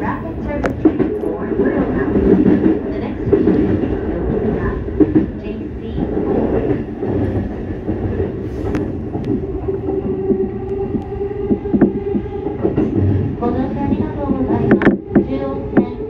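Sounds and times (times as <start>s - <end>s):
train motors and wheels rumbling: 0.0s - 16.0s.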